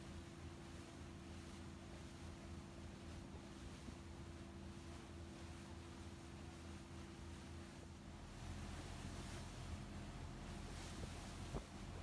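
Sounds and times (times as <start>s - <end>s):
steady hiss: 0.0s - 12.0s
boat engine hum: 7.0s - 12.0s.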